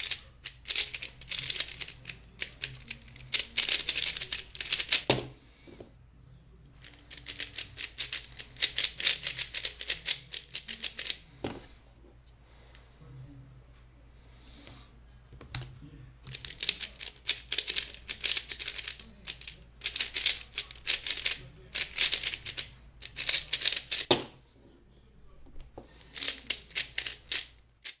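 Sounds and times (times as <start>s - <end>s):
puzzle cube clicking turns: 0.0s - 5.1s, 6.8s - 11.2s, 16.3s - 24.1s, 26.1s - 28.0s.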